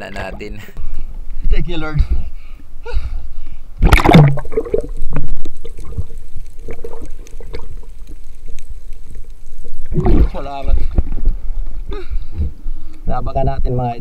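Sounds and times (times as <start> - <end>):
water sloshing and gurgling: 3.3 - 13.0
rush of water: 3.8 - 11.9.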